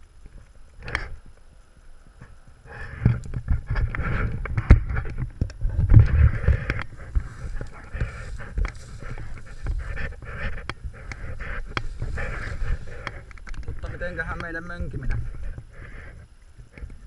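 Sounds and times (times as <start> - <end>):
handling rumble: 0.0 - 17.0
leaves and branches rustling: 0.0 - 17.0.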